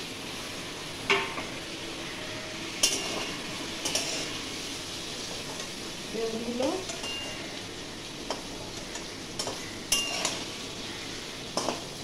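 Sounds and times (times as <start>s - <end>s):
vegetables sizzling in a wok: 0.0s - 12.0s.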